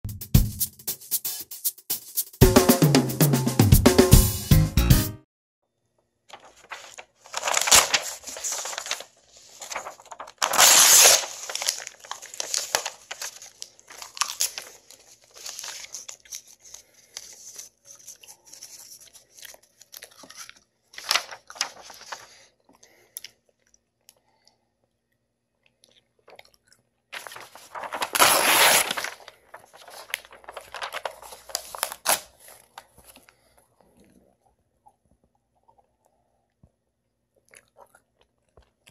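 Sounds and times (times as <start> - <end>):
paper crinkling and tearing: 6.3 - 22.4, 27.2 - 33.2
chewing paper: 6.3 - 23.8, 27.2 - 34.2.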